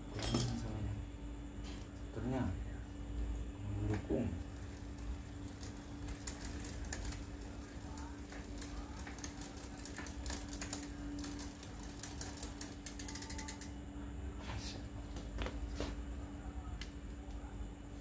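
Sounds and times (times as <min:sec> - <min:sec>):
bicycle hub ratcheting clicks: 0:04.4 - 0:13.7
metal clicks of bike chain: 0:04.6 - 0:13.7.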